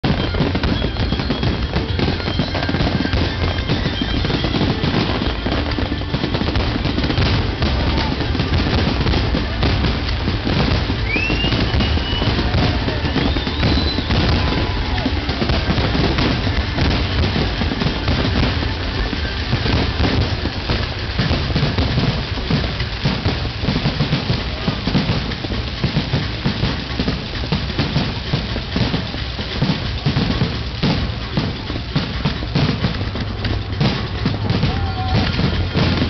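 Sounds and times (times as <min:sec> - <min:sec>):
firework bursts and crackling: 0:00.0 - 0:36.0
low booming: 0:00.0 - 0:36.0
rising firework whistles: 0:00.0 - 0:36.0
music playing: 0:00.1 - 0:24.8.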